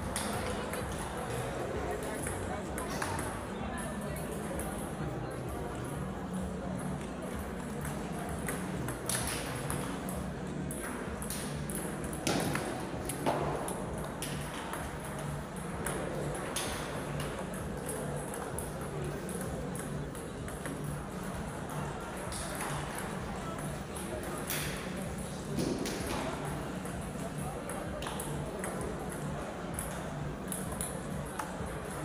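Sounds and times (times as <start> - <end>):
ping pong ball clicking off bats: 0.1 - 32.0
ball bouncing on table: 2.1 - 3.4, 10.8 - 17.3.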